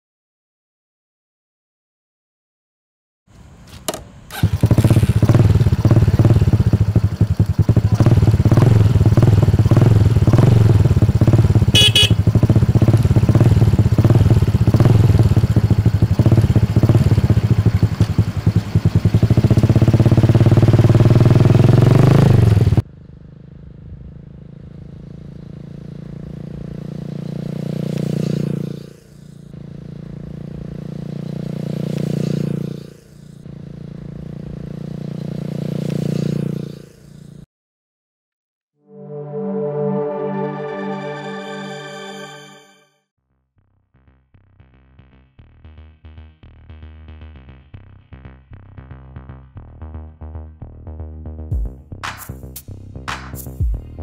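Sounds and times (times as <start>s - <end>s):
motorcycle engine running: 3.9s - 37.5s
motorcycle riding past: 4.3s - 37.5s.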